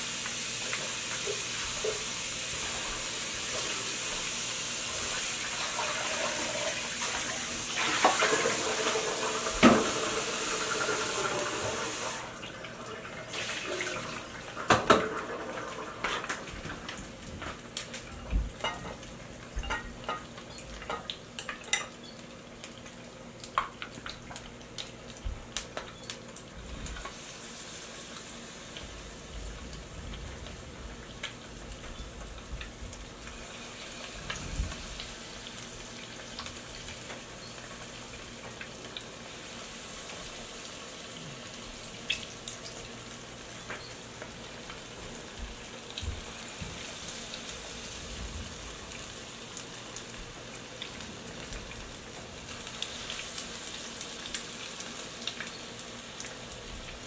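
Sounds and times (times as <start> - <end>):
oil hissing in a frying pan: 0.0 - 57.0
tap running into a sink: 5.8 - 12.2, 14.6 - 15.4
dishes clinking: 19.6 - 22.0.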